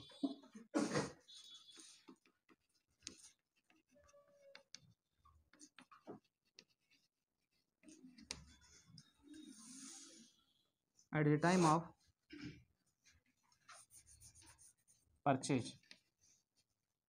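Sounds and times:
pen scratching on paper: 0.8 - 4.9, 5.5 - 10.4, 13.0 - 15.0.

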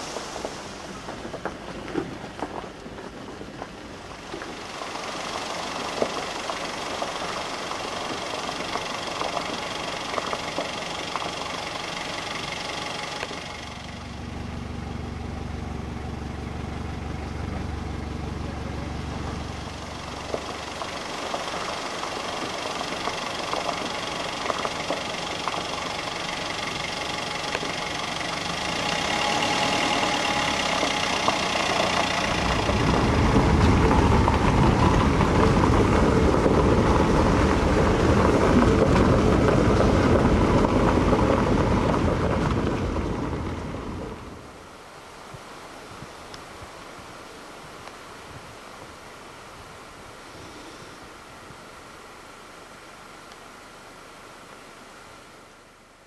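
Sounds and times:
vehicle engine and road noise: 0.0 - 52.4
deep engine drone: 4.6 - 44.6.

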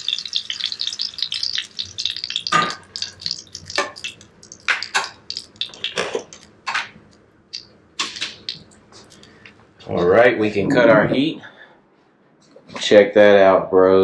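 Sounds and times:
frying oil crackling and popping: 0.0 - 9.5
spatula and dishes clattering: 2.4 - 7.0.

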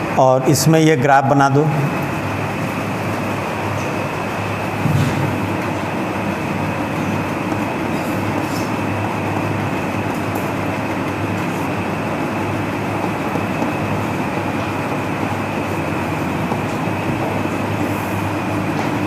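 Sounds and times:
chalk writing on a blackboard: 6.8 - 18.4.

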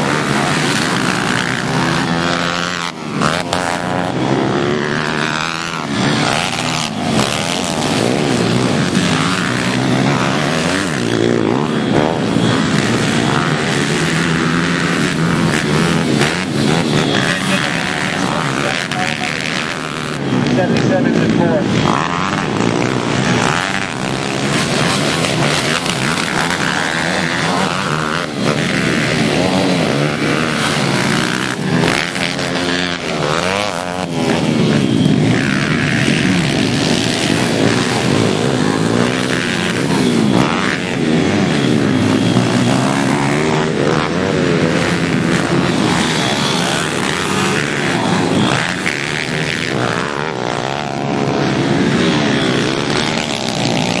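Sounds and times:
pit bike engines revving: 0.0 - 54.0.

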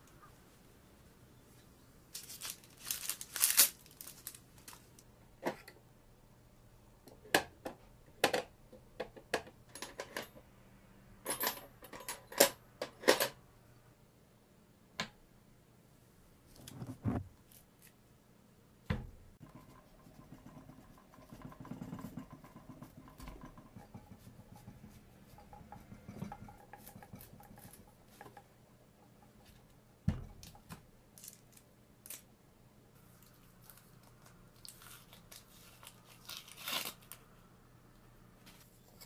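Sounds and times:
onion skin crinkling and tearing: 2.2 - 5.0, 31.2 - 32.3, 33.2 - 37.3.

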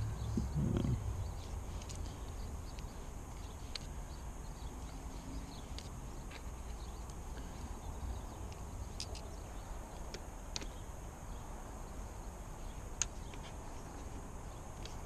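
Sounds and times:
low background rumble: 0.0 - 10.0.

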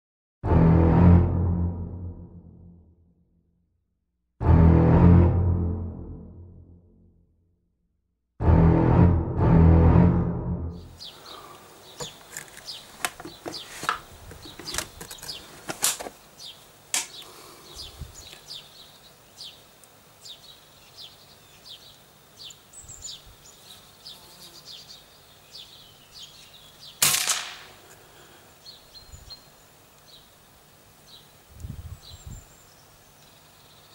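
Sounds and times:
small birds chirping: 10.8 - 27.0, 27.7 - 33.9
suppressed rifle shot: 27.0 - 27.8.

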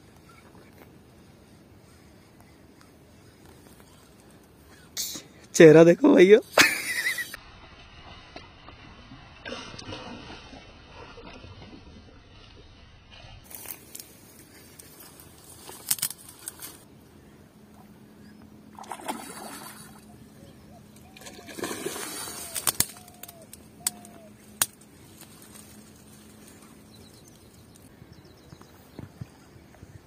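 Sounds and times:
water sloshing and splashing: 18.6 - 27.9.

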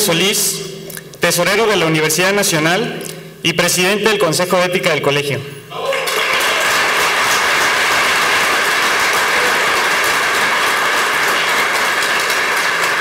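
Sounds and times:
crowd applauding: 5.8 - 13.0.

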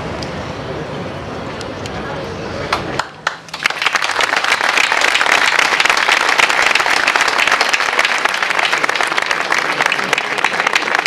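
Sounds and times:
crowd applauding: 2.7 - 11.0.

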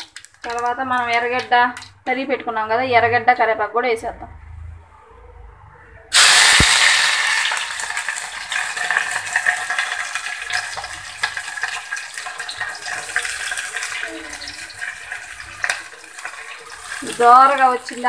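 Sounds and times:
food sizzling in hot oil: 6.1 - 18.0
oil crackling and spitting: 6.1 - 18.0.

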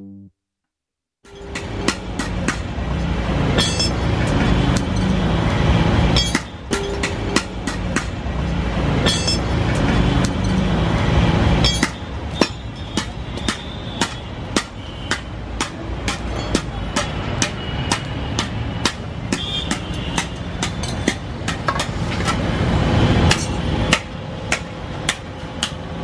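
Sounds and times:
hammer striking anvil: 1.3 - 2.7, 3.5 - 5.2, 6.1 - 8.2, 9.0 - 10.7, 11.6 - 22.4, 23.3 - 25.8.

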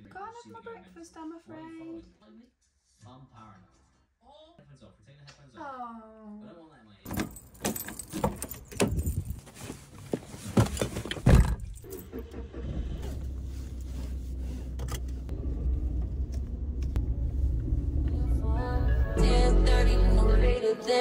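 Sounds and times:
keys jangling in door lock: 7.1 - 9.4
car engine humming: 10.9 - 20.6.

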